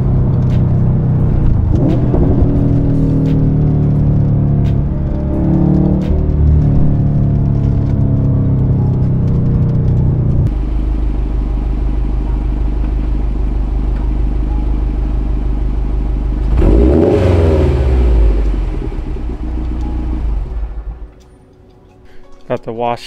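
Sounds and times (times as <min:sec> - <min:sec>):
car engine idling: 0:00.0 - 0:21.3.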